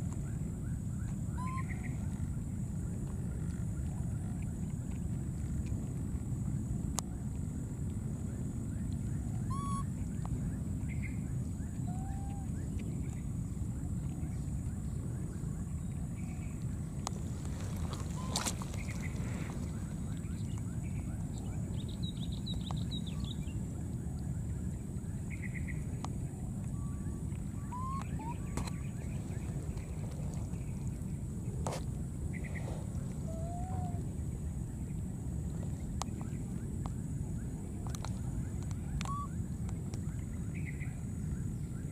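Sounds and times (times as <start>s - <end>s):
faint high whine: 0.0s - 41.9s
steady low rumble: 0.0s - 41.9s
wind buffeting microphone: 1.8s - 41.9s
baby monkeys coo calls: 9.4s - 9.8s, 27.6s - 28.5s, 33.2s - 34.0s
short clear calls: 27.6s - 28.7s.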